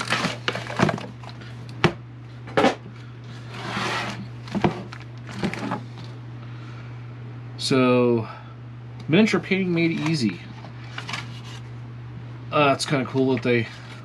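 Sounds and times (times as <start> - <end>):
steady low hum: 0.0 - 14.0
box scraping slide: 3.4 - 4.3.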